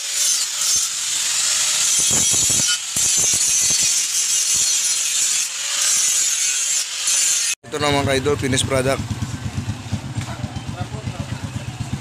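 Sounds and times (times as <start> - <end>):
angle grinder grinding steel: 0.0 - 9.0.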